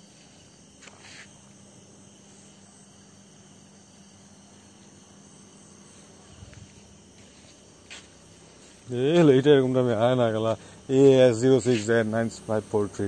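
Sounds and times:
soft rustle: 0.0 - 1.5, 5.8 - 10.8
crickets chirping: 0.0 - 13.0.

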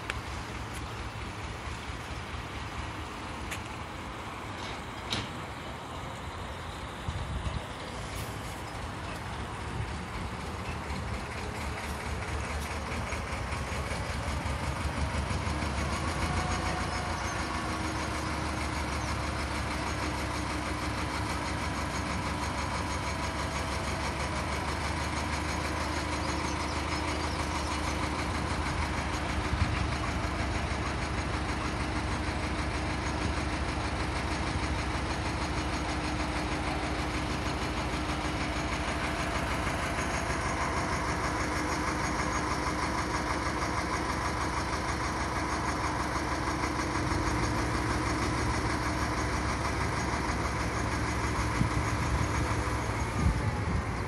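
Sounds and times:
diesel engine chugging: 0.0 - 54.0.

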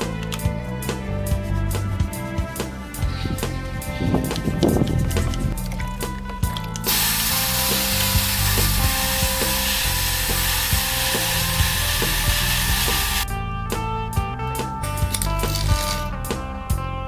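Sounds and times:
background music with beat: 0.0 - 17.0
sandblasting gun hissing: 6.8 - 13.2.

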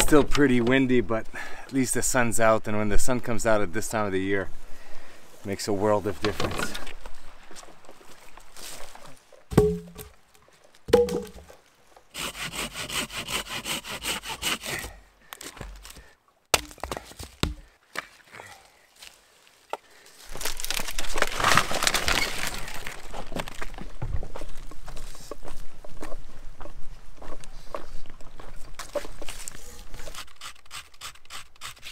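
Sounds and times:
dry bark crackling rustle: 5.3 - 9.4, 18.2 - 25.4
chopping strikes: 9.5 - 10.1, 10.9 - 11.4, 16.5 - 17.7
wooden knocks: 9.5 - 10.1, 10.9 - 11.5
sawing through wood: 12.1 - 15.0, 29.8 - 31.9.

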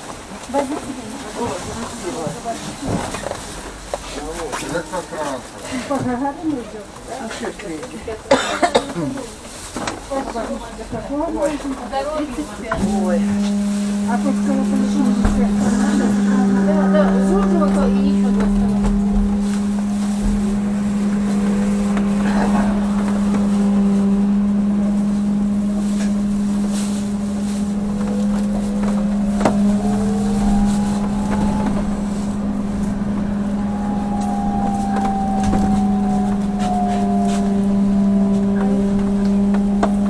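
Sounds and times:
deep electrical hum: 10.2 - 40.0
electric motor whine: 12.2 - 40.0.

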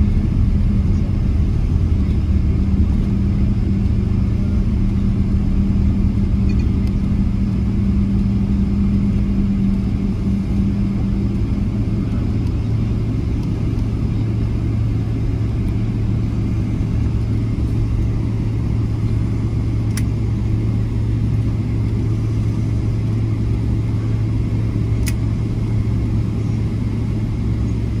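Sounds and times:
airliner cabin rumble: 0.0 - 28.0
low hum: 0.0 - 28.0.

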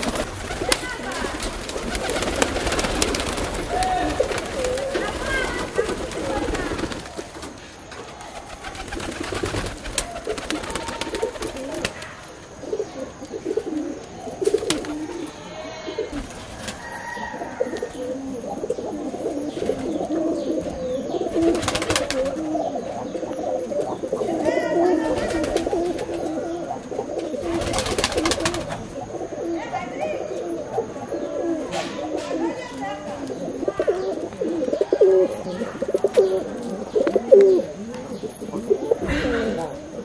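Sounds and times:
rustling bursts: 0.0 - 12.2
pigeons cooing: 0.0 - 40.0.

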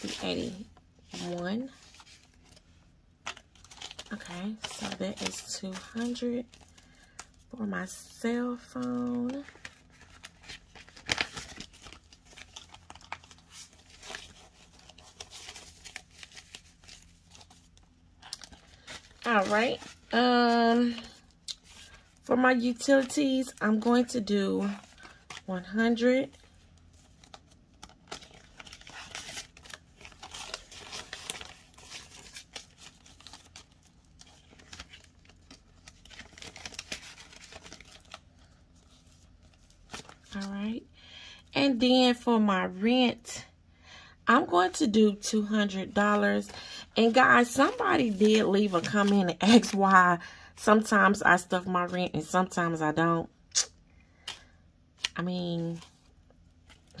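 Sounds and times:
plastic envelope crinkling: 0.0 - 7.5, 8.1 - 40.5, 46.4 - 50.0
paper banknotes rustling: 8.6 - 22.0, 22.6 - 40.4.

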